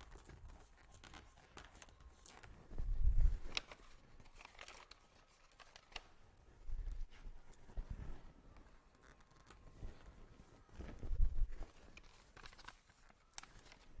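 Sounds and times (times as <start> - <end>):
sticker sheets crinkling: 0.0 - 2.7, 3.4 - 6.3, 8.6 - 14.0.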